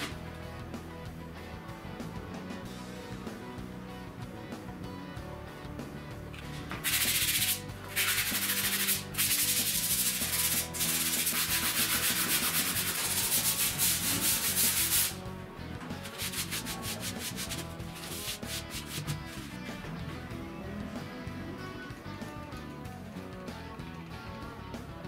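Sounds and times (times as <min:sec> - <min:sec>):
sanding block scrubbing wood: 0:06.8 - 0:15.2, 0:16.0 - 0:19.6.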